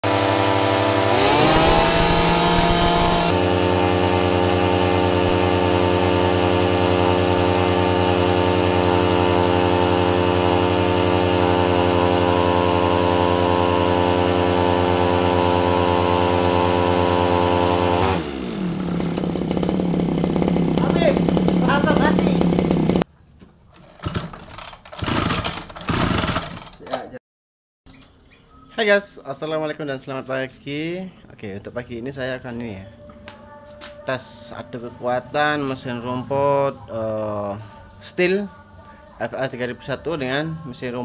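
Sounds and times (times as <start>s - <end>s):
brush cutter engines revving: 0.0s - 23.0s, 24.0s - 26.7s.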